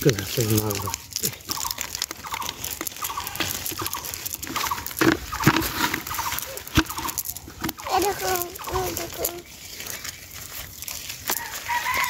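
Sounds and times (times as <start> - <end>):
animal chirping calls: 0.5 - 10.1.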